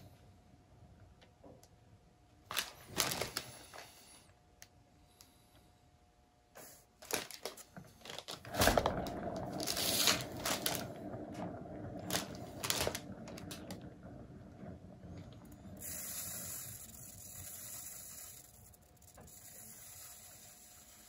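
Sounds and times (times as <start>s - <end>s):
turntable rolling rumble: 7.7s - 21.0s.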